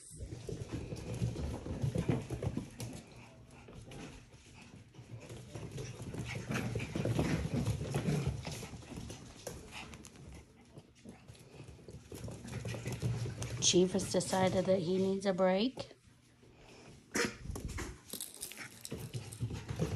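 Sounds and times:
puppy paws pattering on wooden floor: 0.0s - 19.9s.

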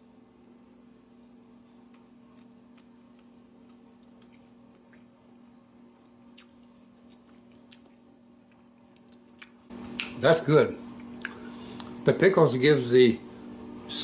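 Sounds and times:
steady low hum: 0.0s - 14.0s
closed-mouth chewing: 1.2s - 5.2s, 6.1s - 10.2s, 11.0s - 12.0s.

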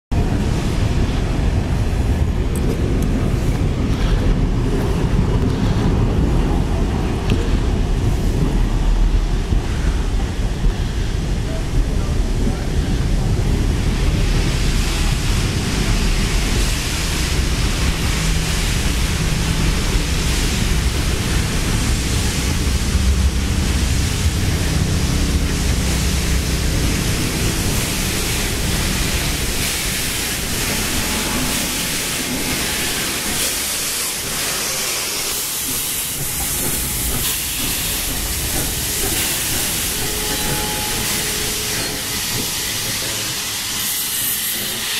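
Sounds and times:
train wheels rumbling on rail: 0.1s - 44.9s
steam hissing: 12.3s - 44.9s.

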